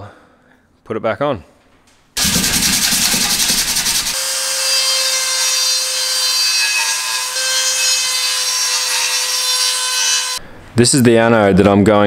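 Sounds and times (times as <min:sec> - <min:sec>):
abrasive pad scrubbing metal: 0:02.2 - 0:04.2.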